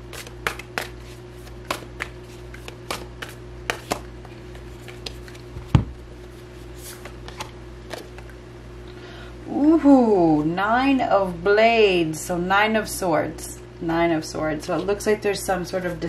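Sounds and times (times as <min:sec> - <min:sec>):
cards being shuffled: 0:00.0 - 0:08.4
steady low hum: 0:00.0 - 0:16.0.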